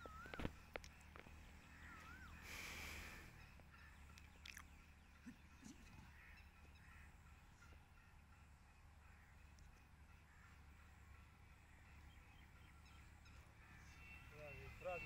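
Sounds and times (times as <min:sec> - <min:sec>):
wavering bird call: 0:00.0 - 0:00.7, 0:01.7 - 0:04.6
faint outdoor ambience: 0:00.0 - 0:15.0.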